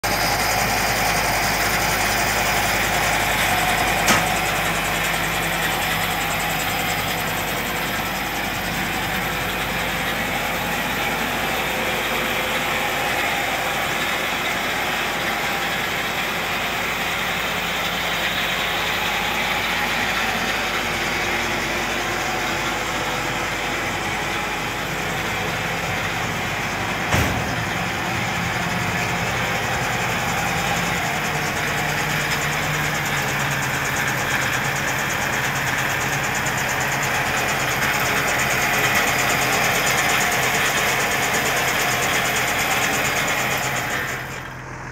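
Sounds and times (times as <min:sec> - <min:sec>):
tractor engine idling: 0:00.0 - 0:44.9
sharp knock: 0:27.1 - 0:27.6.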